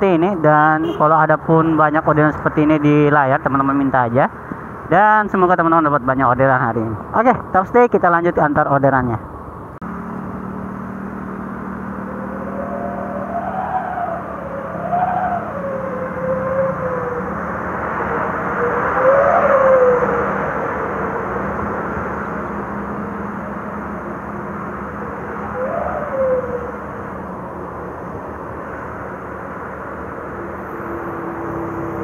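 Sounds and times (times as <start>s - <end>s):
road and wind noise: 0.0s - 32.0s
truck passing: 0.0s - 32.0s
scooter engine hum: 9.8s - 32.0s.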